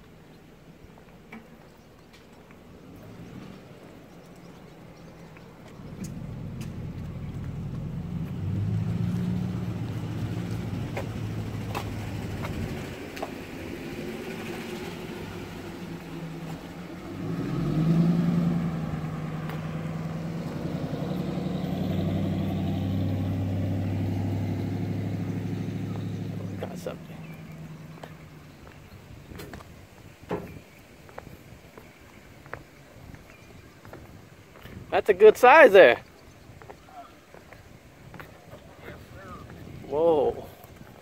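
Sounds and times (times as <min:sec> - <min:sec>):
engine running: 0:01.0 - 0:29.5.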